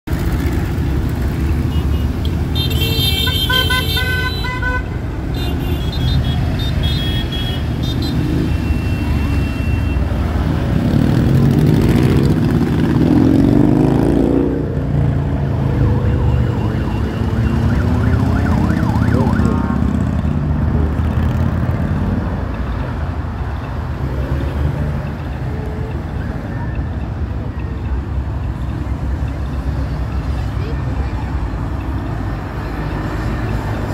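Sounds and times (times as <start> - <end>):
motorcycle engines rumbling past: 7.6 - 22.3
high-pitched tone: 15.6 - 20.4.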